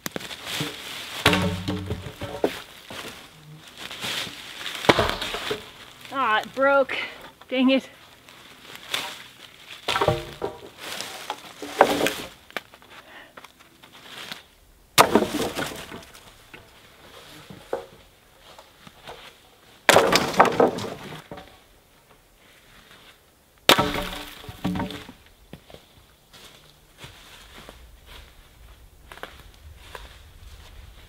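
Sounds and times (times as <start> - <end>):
dry branches snapping: 0.0 - 6.6, 8.1 - 12.8, 23.7 - 24.9.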